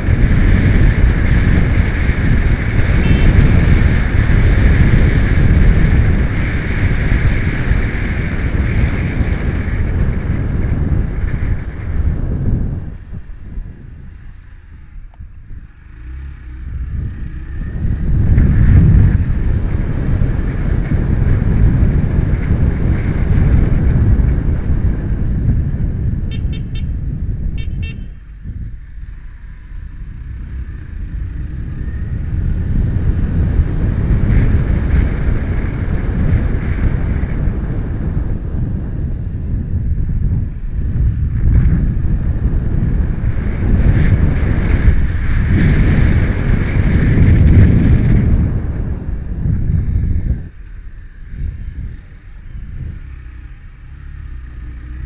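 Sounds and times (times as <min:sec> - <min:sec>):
motorcycle engine running: 0:00.0 - 0:55.0
wind buffeting microphone: 0:00.0 - 0:55.0
horn beeps: 0:03.0 - 0:03.7, 0:26.3 - 0:27.0, 0:27.6 - 0:28.3.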